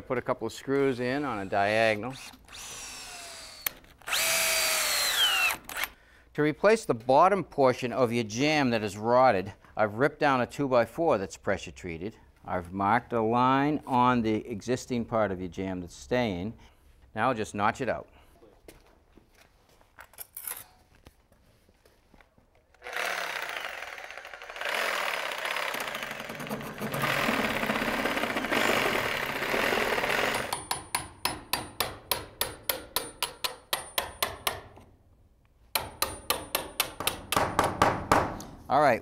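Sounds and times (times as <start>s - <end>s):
reciprocating saw cutting wood: 1.0s - 5.9s, 22.8s - 30.5s
fast sharp knocks: 35.8s - 38.4s.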